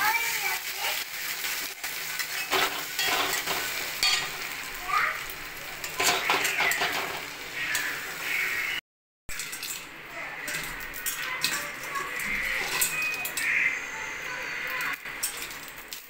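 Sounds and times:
eggs sizzling in a pan: 0.0 - 16.0
metal spatula scraping a pan: 1.8 - 4.7, 5.7 - 8.4, 9.3 - 14.0.

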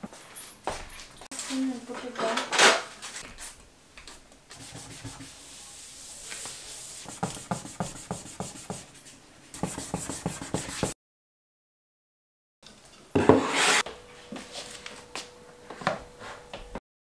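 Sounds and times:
cloth wiping hard desktop: 4.6 - 8.9, 9.6 - 11.0.

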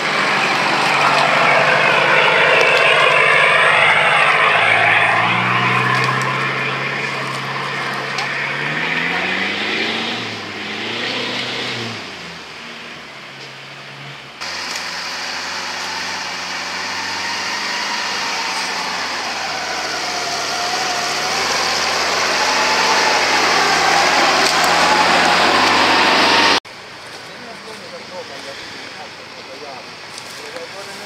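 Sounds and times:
suv engine revving: 0.0 - 26.6
off-road vehicle engine under load: 0.0 - 31.0.

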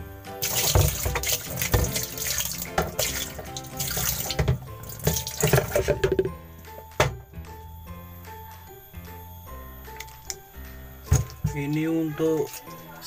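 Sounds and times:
water splashing into washing machine tub: 0.4 - 6.3.

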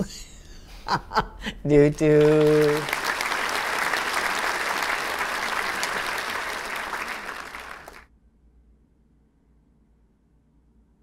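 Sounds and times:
crowd applauding: 2.0 - 8.1.

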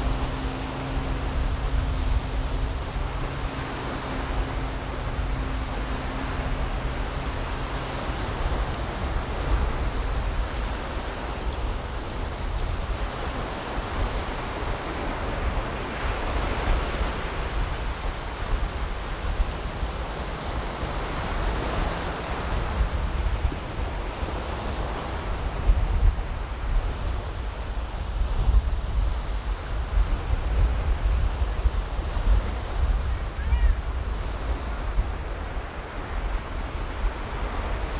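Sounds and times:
surf washing onto beach: 0.0 - 37.9
wind buffeting the microphone: 0.0 - 37.9.

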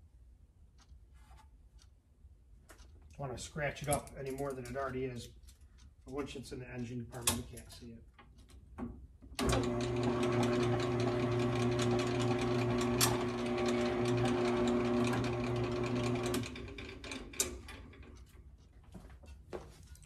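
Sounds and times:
drill press motor humming: 9.4 - 18.2.

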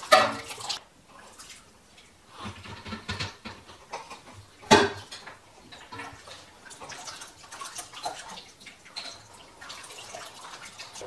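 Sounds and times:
steel pot clanking on counter: 0.0 - 0.6.

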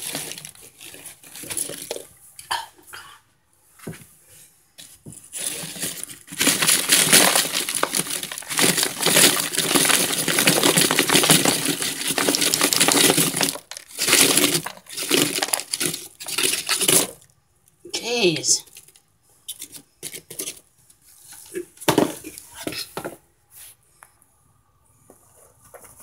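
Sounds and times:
cornstarch crunching: 5.4 - 17.2.

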